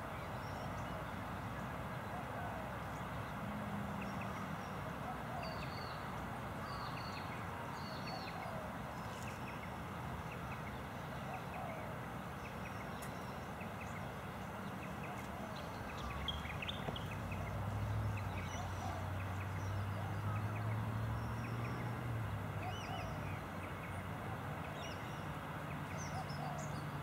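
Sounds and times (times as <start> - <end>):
small birds chirping: 12.4 - 24.0
low engine hum: 15.4 - 24.3.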